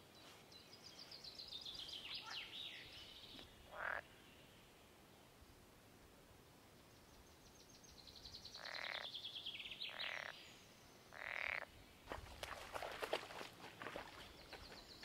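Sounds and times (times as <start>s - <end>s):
frog rasping calls: 3.7s - 4.1s, 8.6s - 9.1s, 9.9s - 10.4s, 11.1s - 11.7s.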